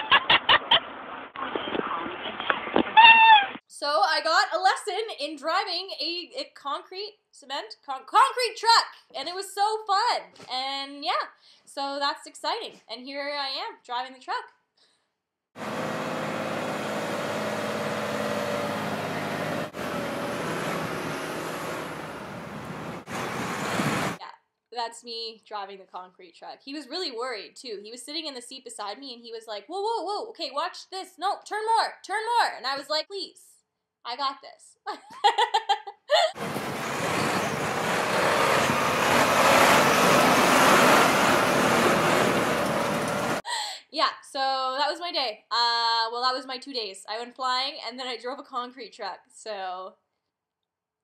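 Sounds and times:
woman's voice: 3.7 - 14.5, 24.2 - 33.5, 34.1 - 35.1, 43.5 - 50.0
diesel truck engine droning: 15.6 - 24.2, 36.4 - 43.4
heavy road noise: 15.6 - 24.2, 36.4 - 43.4.

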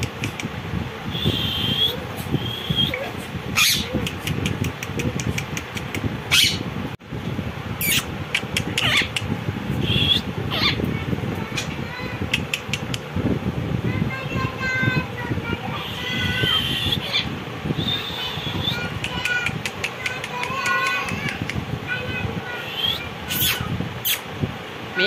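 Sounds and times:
parakeet whistled notes: 1.1 - 3.0
parakeets screeching: 1.1 - 4.5, 6.3 - 6.7, 7.8 - 9.2, 9.8 - 10.9, 15.7 - 24.2.

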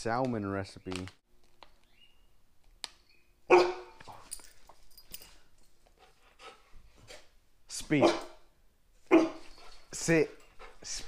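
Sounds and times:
dog barking: 3.5 - 4.0, 8.0 - 8.4, 9.1 - 9.5
dog yipping: 3.5 - 4.3, 9.1 - 9.8.

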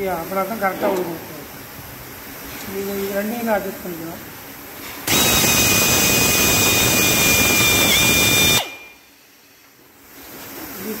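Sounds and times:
soft hiss: 0.0 - 11.0
air drill whining: 5.1 - 9.0.

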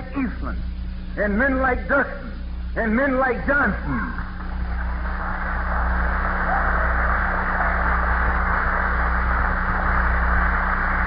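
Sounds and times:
low mains hum: 0.0 - 11.0
audience applause: 4.4 - 11.0.

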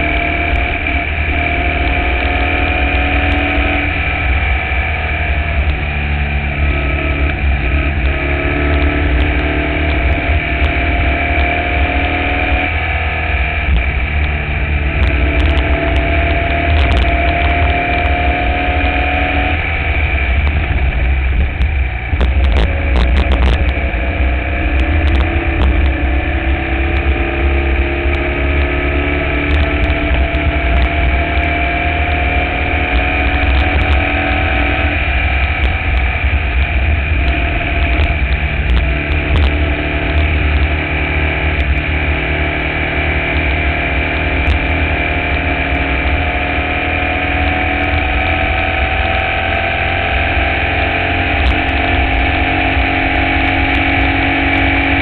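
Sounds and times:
heavy low rumble: 0.0 - 55.0
race car engine running hard: 0.0 - 55.0
sharp ticks: 6.6 - 12.8, 13.6 - 19.6, 21.4 - 31.4, 32.0 - 40.8.

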